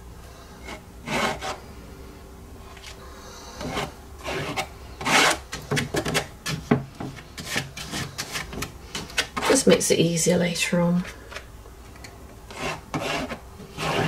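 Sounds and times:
card scraping paint on canvas: 3.6 - 9.4, 12.5 - 14.0.

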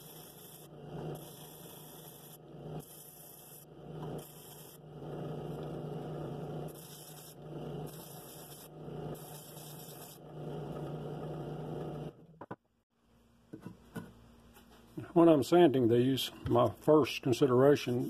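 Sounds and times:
drill press motor hum: 0.0 - 12.4.

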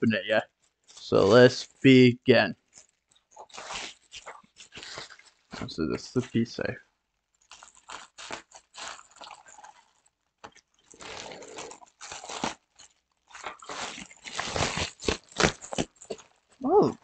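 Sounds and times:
package packaging crackling and ripping: 2.6 - 5.8, 7.4 - 16.6.

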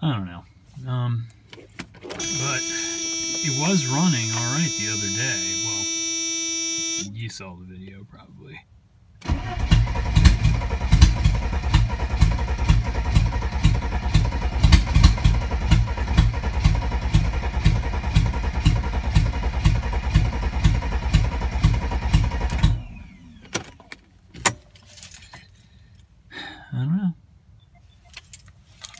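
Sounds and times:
car engine cranking on starter: 2.0 - 7.1, 9.2 - 24.0.

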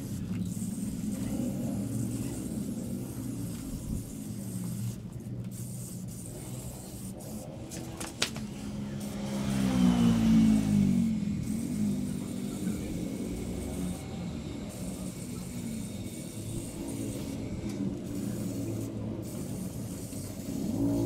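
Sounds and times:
motorcycle engine revving: 0.0 - 5.2, 6.3 - 21.0.

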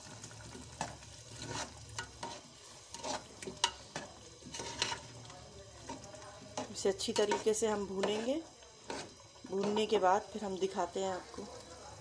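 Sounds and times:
low sizzle: 0.0 - 12.0
metal spoon scraping a pot: 0.8 - 5.2, 5.8 - 10.0.

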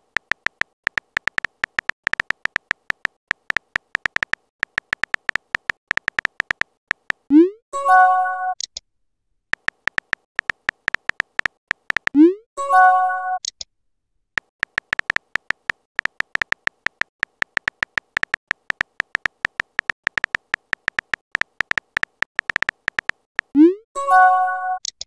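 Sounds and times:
phone keyboard typing clicks: 0.0 - 7.3, 9.5 - 12.2, 14.4 - 23.6
message chime: 24.0 - 24.8.

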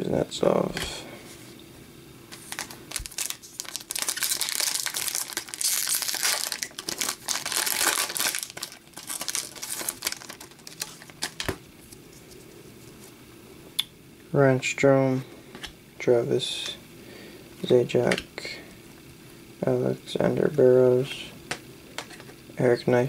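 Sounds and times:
foil wrapper crackling: 2.3 - 11.6.

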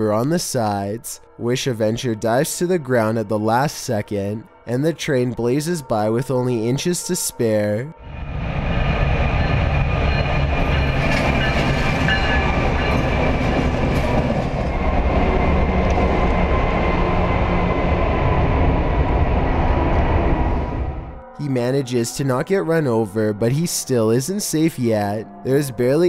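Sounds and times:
train rumbling and rattling: 8.0 - 21.2.

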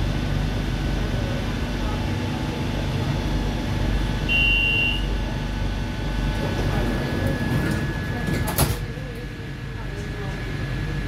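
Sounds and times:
train equipment humming: 0.0 - 11.0
short high beep: 4.3 - 5.1.

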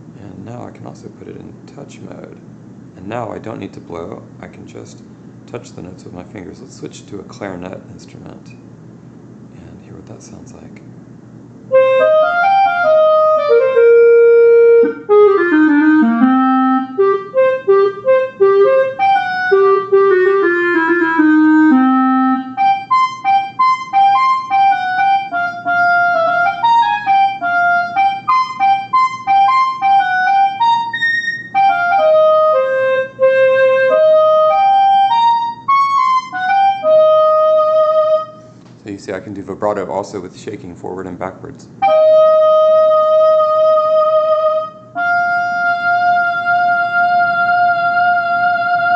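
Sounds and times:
clarinet playing a tune: 11.7 - 38.6, 41.8 - 48.9.

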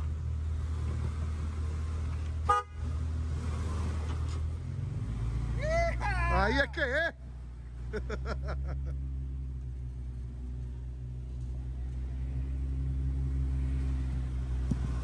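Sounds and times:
engine running at low revs: 0.0 - 15.0
person calling out: 5.6 - 7.2.

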